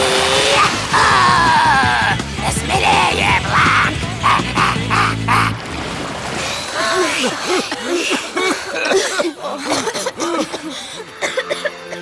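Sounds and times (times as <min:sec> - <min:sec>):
group chuckling and murmuring: 0:03.4 - 0:05.6, 0:06.8 - 0:12.0.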